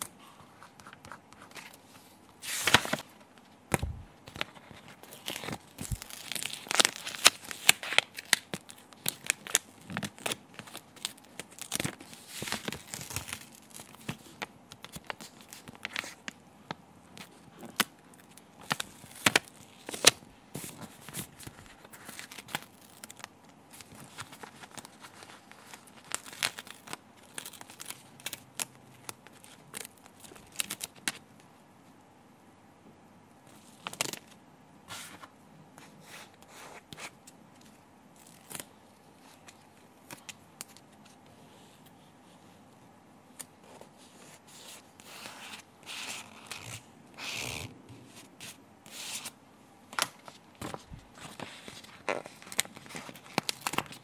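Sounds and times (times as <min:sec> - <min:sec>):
backing sheet crinkling: 0:00.0 - 0:16.4, 0:49.9 - 0:54.0.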